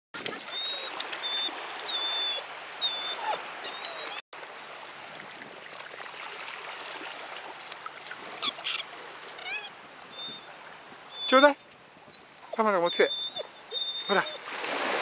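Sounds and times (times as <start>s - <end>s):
surf washing and splashing: 0.2s - 15.0s
dog whining: 0.5s - 4.2s, 12.5s - 14.4s.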